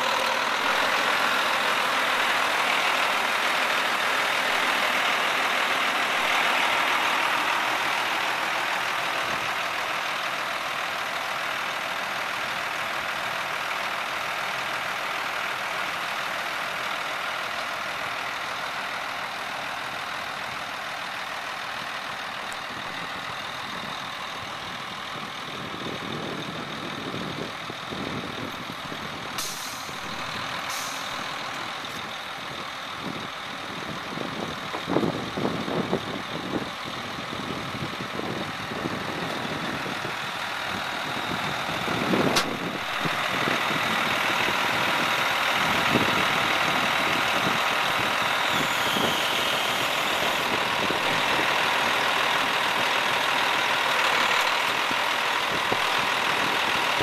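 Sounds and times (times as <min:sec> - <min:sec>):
diesel engine idling: 0:00.0 - 0:57.0
short hisses: 0:29.4 - 0:30.0
brief clunks: 0:42.4 - 0:42.7
sharp click: 0:42.4 - 0:42.7.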